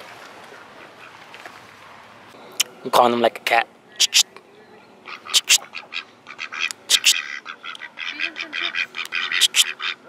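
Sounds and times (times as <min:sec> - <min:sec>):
ducks quacking: 0:04.0 - 0:04.2, 0:05.0 - 0:10.0.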